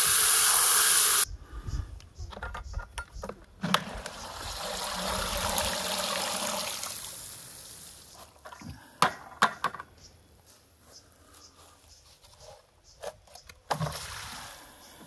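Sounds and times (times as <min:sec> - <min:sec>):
water draining from bucket: 0:03.8 - 0:07.4.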